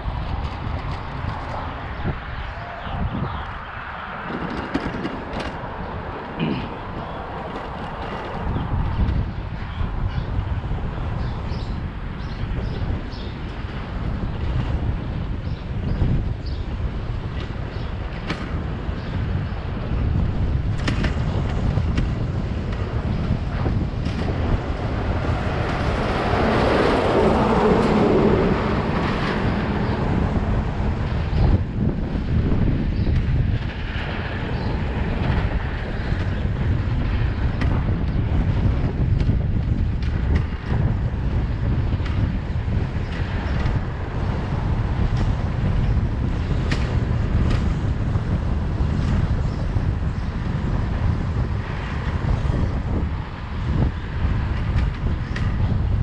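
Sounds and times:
wind rumble on microphone: 0.0 - 56.0
tow truck engine passing: 21.2 - 32.8.

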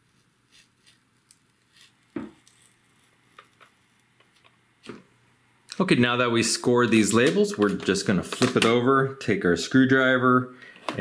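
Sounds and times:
razor blade scratching plastic: 0.5 - 3.1.

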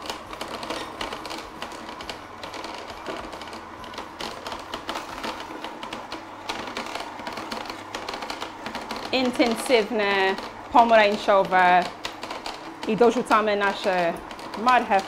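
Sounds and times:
juicer crushing root: 0.0 - 15.0.

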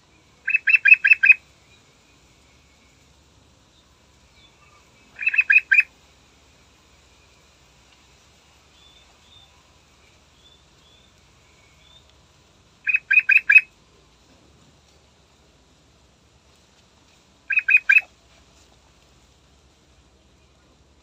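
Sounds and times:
faint high bird chirps: 0.4 - 3.0, 3.7 - 5.9, 8.7 - 12.2, 12.8 - 13.7, 17.5 - 18.1
bird singing quick notes: 5.2 - 5.9.

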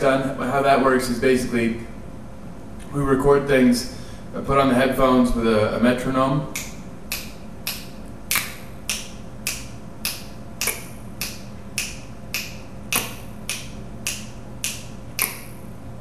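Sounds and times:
finger snaps: 6.5 - 15.7.

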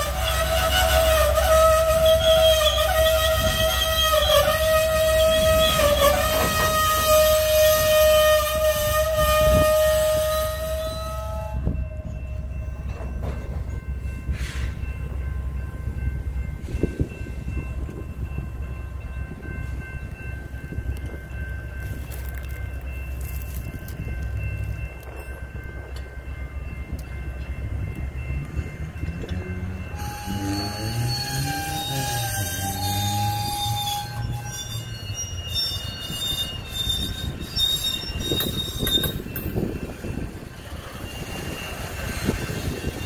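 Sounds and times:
locomotive horn blast: 0.0 - 12.1, 29.6 - 34.8
rail car rumbling over tracks: 0.0 - 43.0.

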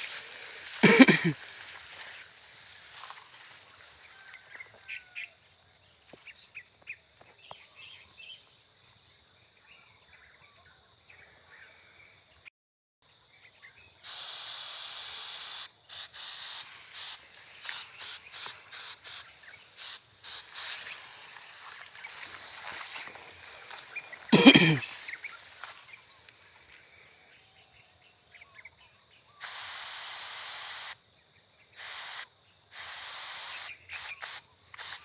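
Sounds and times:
insects chirring: 0.0 - 12.5, 13.1 - 35.0.

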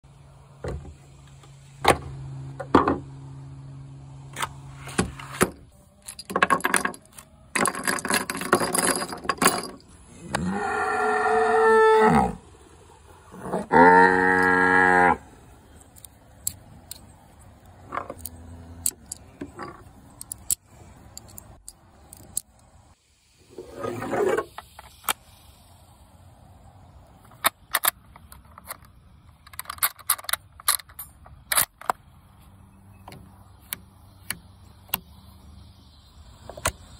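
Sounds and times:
cattle mooing: 10.2 - 12.4, 13.3 - 15.3.

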